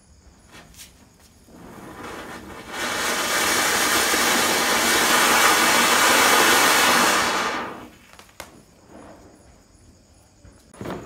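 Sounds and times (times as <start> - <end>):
firework fountain hissing: 0.5 - 9.9.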